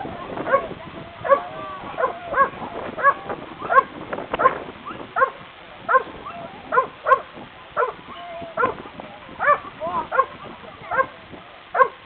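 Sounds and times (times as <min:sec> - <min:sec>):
dog barking: 0:02.0 - 0:04.6, 0:05.2 - 0:06.1, 0:06.7 - 0:08.0, 0:09.4 - 0:11.2, 0:11.8 - 0:12.0.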